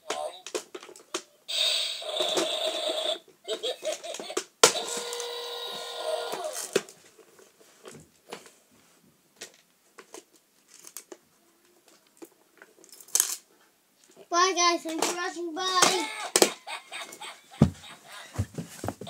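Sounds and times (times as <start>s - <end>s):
toy electronic tones: 4.8s - 6.5s.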